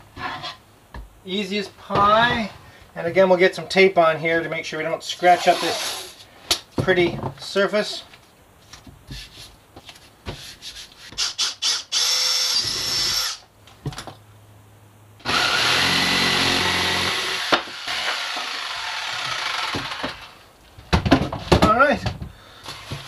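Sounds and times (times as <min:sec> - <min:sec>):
loud rasp: 0:05.2 - 0:06.2
jigsaw cutting wood: 0:05.4 - 0:06.2, 0:15.2 - 0:20.4.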